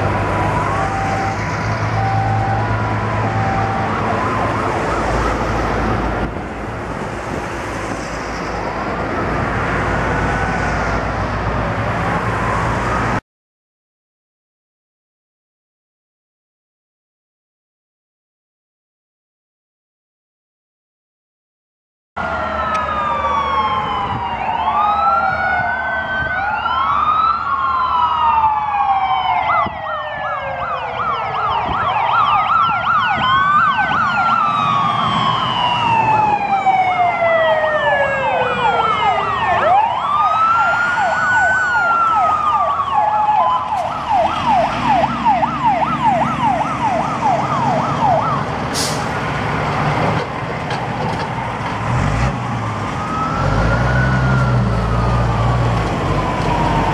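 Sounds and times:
fire engine sirens wailing: 0:00.0 - 0:13.2, 0:22.2 - 0:56.9
fire truck engine: 0:00.0 - 0:13.2, 0:22.2 - 0:56.9
fast siren yelp: 0:00.2 - 0:05.9, 0:22.2 - 0:48.6, 0:53.0 - 0:56.9
short sharp hiss: 0:48.8 - 0:49.2.

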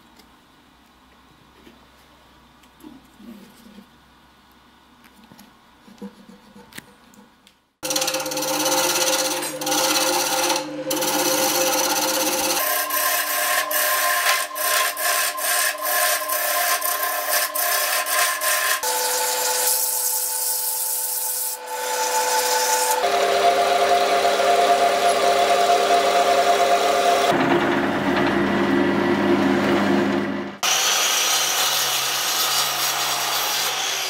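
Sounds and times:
drill boring into wood: 0:07.8 - 0:19.4
gouge scraping spinning wood: 0:07.8 - 0:28.4
wood lathe motor running: 0:07.8 - 0:30.9.

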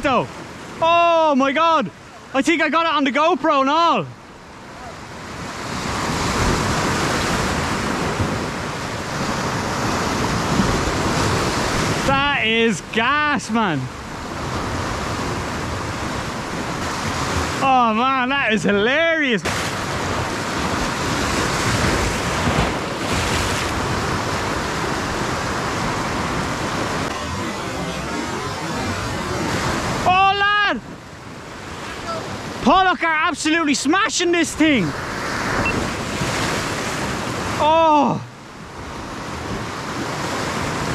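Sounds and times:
waves breaking over rocks: 0:04.3 - 0:40.9
wind on microphone: 0:19.5 - 0:27.2.

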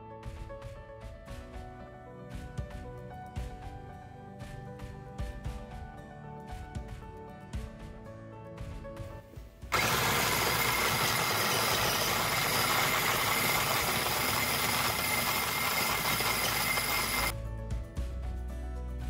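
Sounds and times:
electric chopper motor whining: 0:09.7 - 0:17.3.

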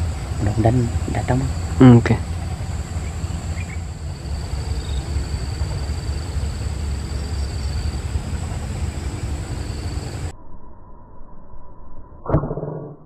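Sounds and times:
high insect drone: 0:00.0 - 0:10.3
low rumble: 0:00.0 - 0:13.0.

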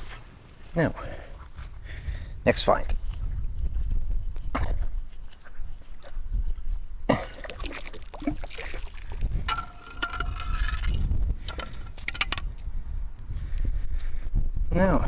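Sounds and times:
water splashing and trickling: 0:07.1 - 0:11.0.

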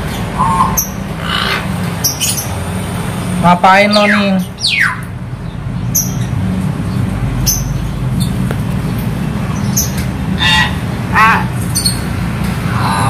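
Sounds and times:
myna bird calling: 0:00.0 - 0:02.6, 0:03.4 - 0:06.4, 0:09.6 - 0:13.0.

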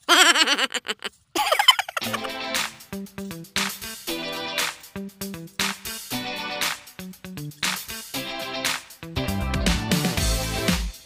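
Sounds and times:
background music with plucked bass: 0:09.2 - 0:10.8.

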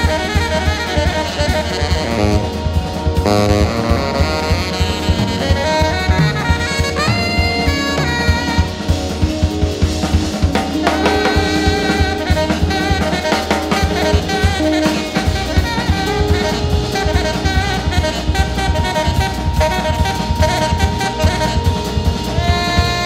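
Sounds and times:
busy drum kit: 0:00.0 - 0:23.0
tenor saxophone improvising: 0:00.0 - 0:23.0.

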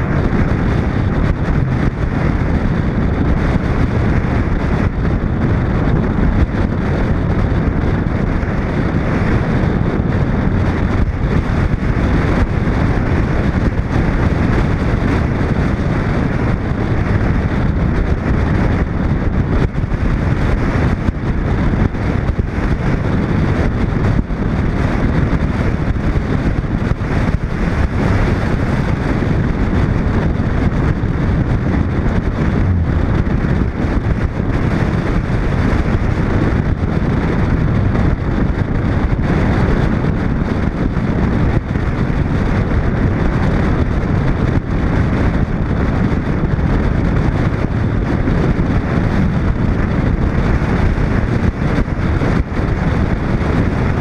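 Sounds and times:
car road noise rumbling: 0:00.0 - 0:54.0
wind buffeting a camera: 0:00.0 - 0:54.0.

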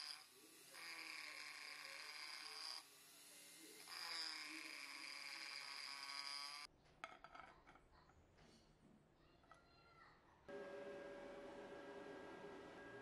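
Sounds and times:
rotary tool high whine: 0:00.0 - 0:06.7.

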